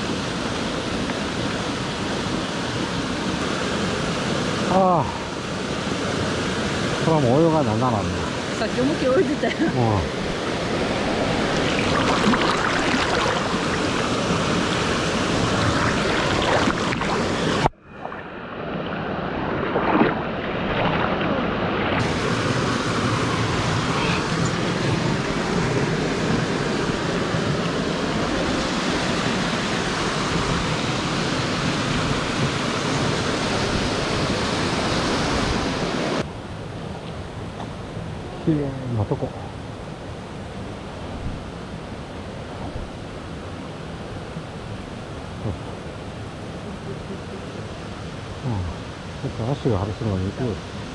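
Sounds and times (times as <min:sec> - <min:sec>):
stream rushing over rocks: 0:00.0 - 0:36.3.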